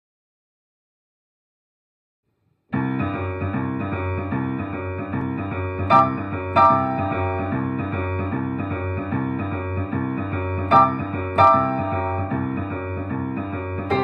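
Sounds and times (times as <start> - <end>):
boogie woogie piano: 2.8 - 14.0
bright treble piano chords: 5.9 - 7.8, 10.7 - 12.5.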